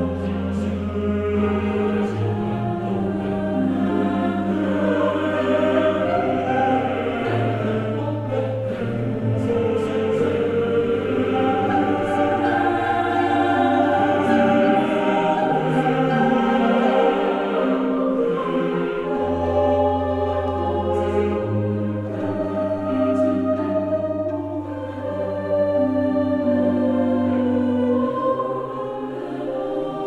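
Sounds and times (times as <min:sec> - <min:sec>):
choral voices singing chords: 0:00.0 - 0:30.0.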